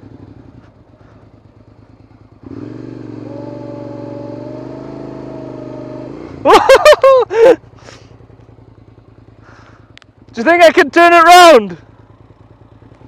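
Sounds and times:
motorcycle engine revving: 0:00.0 - 0:13.0
loud engine revving bursts: 0:02.4 - 0:06.6.

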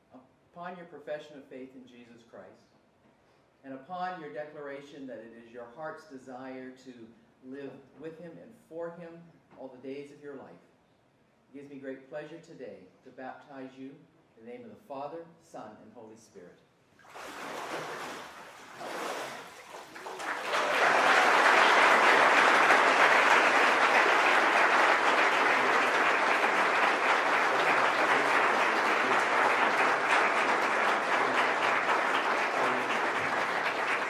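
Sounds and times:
water sloshing in a tank: 0:17.0 - 0:20.2
congregation applauding: 0:17.2 - 0:34.0.

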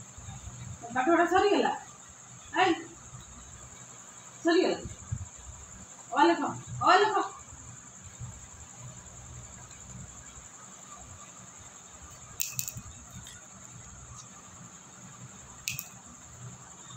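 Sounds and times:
crickets chirping: 0:00.0 - 0:16.9
sharp clicks: 0:12.2 - 0:13.4, 0:15.6 - 0:16.0.

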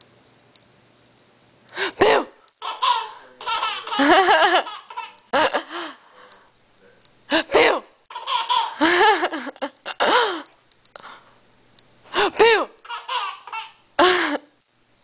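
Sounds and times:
baby laughing: 0:02.6 - 0:05.3, 0:08.1 - 0:09.7, 0:12.8 - 0:14.3.

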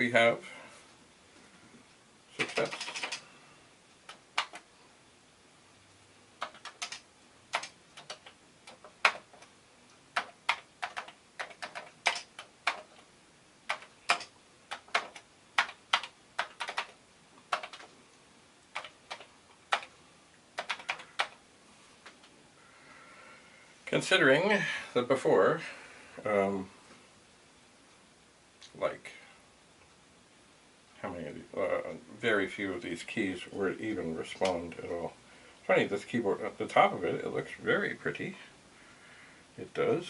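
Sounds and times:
keyboard keys clacking: 0:02.4 - 0:03.2, 0:06.4 - 0:09.5, 0:13.7 - 0:17.9, 0:20.6 - 0:21.4.

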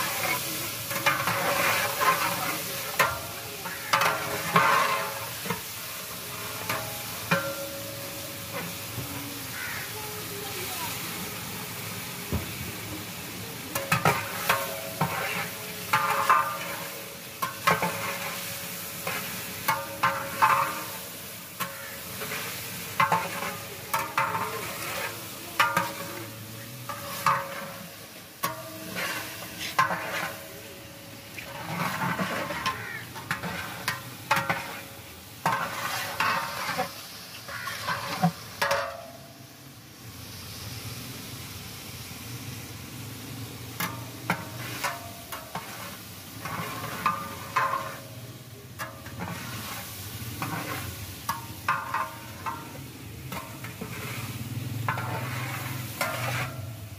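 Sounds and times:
metal ladle scraping pot: 0:00.0 - 0:07.8, 0:13.7 - 0:30.6, 0:31.2 - 0:39.0, 0:43.8 - 0:48.2, 0:48.8 - 0:56.9
hot liquid sizzling: 0:00.0 - 0:56.9.

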